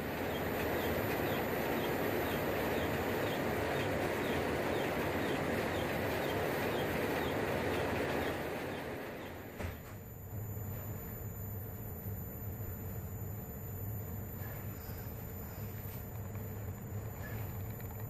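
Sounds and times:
shop equipment humming: 0:00.0 - 0:18.0
faint high chirp: 0:11.1 - 0:17.8.

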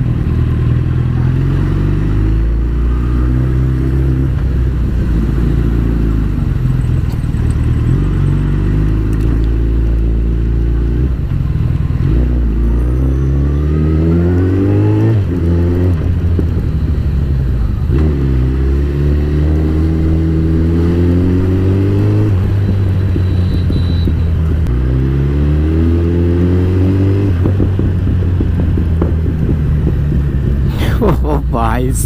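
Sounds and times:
motorcycle engine running: 0:21.5 - 0:24.7, 0:27.3 - 0:30.8.

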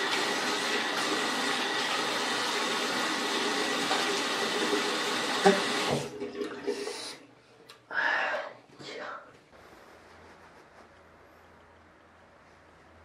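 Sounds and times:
tap water running into sink: 0:00.0 - 0:07.1.

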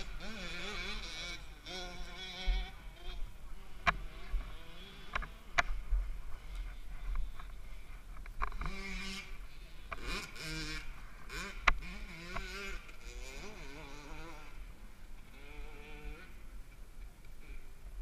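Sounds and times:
wind rumble on microphone: 0:00.0 - 0:10.0.

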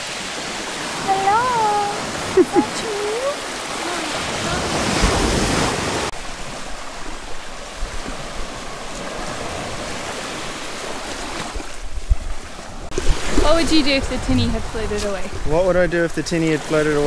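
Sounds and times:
small waves lapping on beach: 0:00.0 - 0:17.0.

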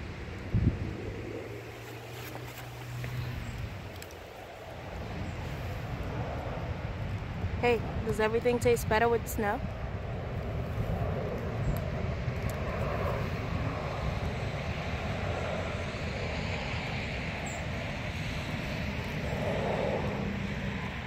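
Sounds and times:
distant engine rumble: 0:00.0 - 0:21.0.

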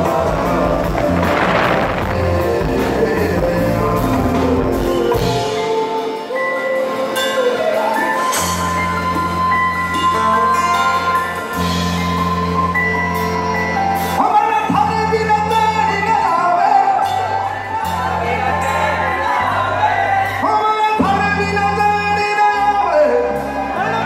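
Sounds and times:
man singing: 0:00.0 - 0:06.8, 0:14.2 - 0:24.0
live band music: 0:00.0 - 0:24.0.

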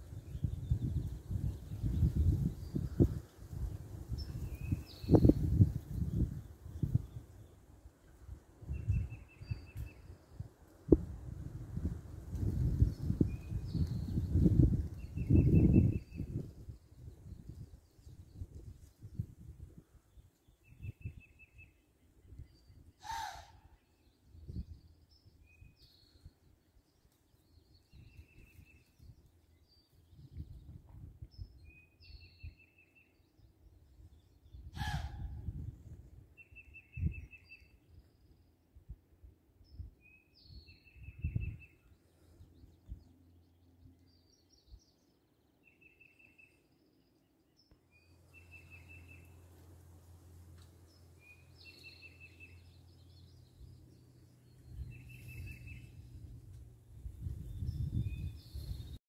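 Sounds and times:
songbird trills: 0:08.7 - 0:10.4, 0:36.3 - 0:38.6, 0:39.6 - 0:49.9, 0:50.5 - 0:56.6
high bird chirps: 0:51.2 - 0:56.2
low microphone rumbles: 0:52.5 - 0:59.0.

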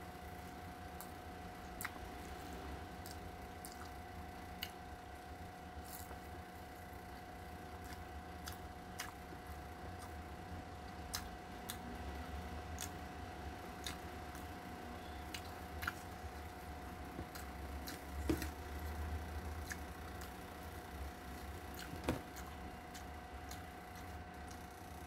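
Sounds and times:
steady low hum: 0:00.0 - 0:25.0
chewing clicks and smacks: 0:01.0 - 0:02.3, 0:03.0 - 0:04.8, 0:07.8 - 0:10.2, 0:10.8 - 0:11.9, 0:12.7 - 0:13.0, 0:13.8 - 0:14.5, 0:15.3 - 0:16.2, 0:17.2 - 0:18.6, 0:19.6 - 0:20.4, 0:21.3 - 0:24.8.

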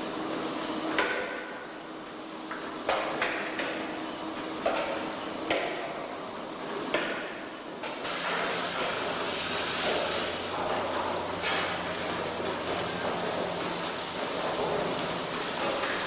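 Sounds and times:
milking equipment hiss: 0:08.1 - 0:16.0.

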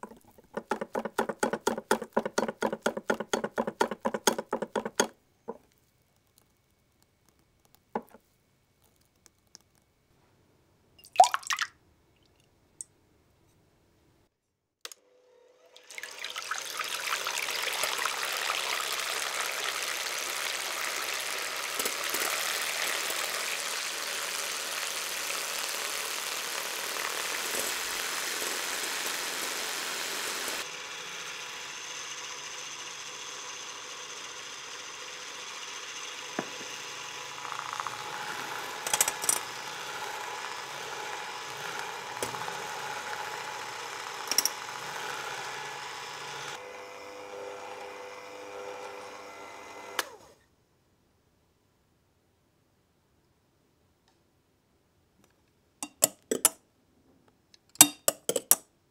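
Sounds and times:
electric hand mixer whirring: 0:00.0 - 0:05.1, 0:15.0 - 0:50.4.

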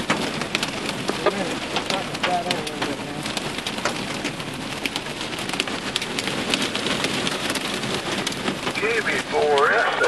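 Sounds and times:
hail ticking on a vehicle: 0:00.0 - 0:10.0
heavy rain on a vehicle roof: 0:00.0 - 0:10.0.

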